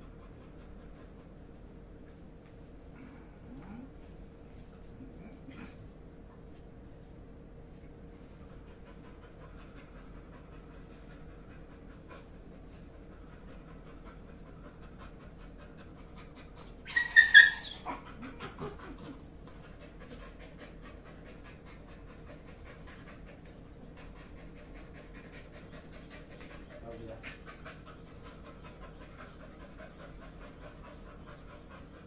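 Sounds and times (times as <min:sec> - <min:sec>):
dog panting: 0:00.0 - 0:32.0
dog grumbling: 0:03.3 - 0:04.0
dog squealing: 0:16.8 - 0:18.7.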